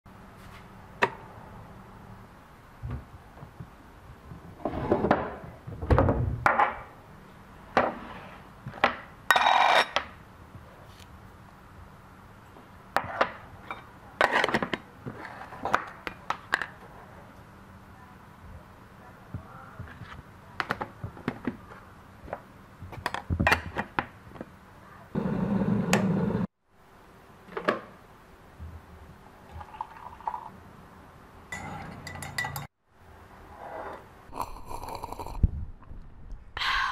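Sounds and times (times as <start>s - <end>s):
teaspoon clinking in ceramic mug: 31.6s - 32.7s.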